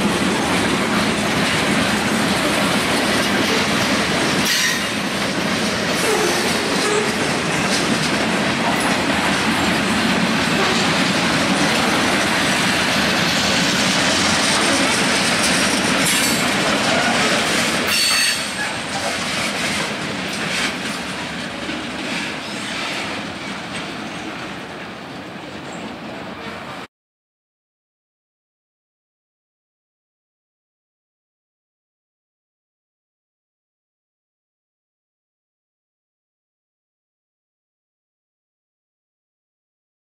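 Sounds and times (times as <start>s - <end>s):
train wheels clattering on rails: 0.0s - 26.9s
train wheel squeals: 4.4s - 5.0s, 5.9s - 7.8s, 13.2s - 21.2s, 22.0s - 24.6s.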